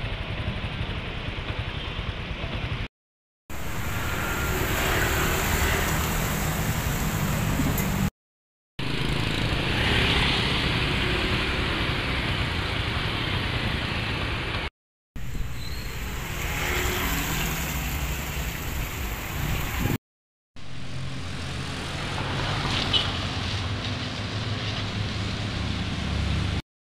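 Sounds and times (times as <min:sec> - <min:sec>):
vehicle engines humming: 0:00.0 - 0:02.9, 0:03.5 - 0:08.1, 0:08.8 - 0:20.0, 0:20.6 - 0:26.6
steady rushing noise: 0:03.5 - 0:08.1.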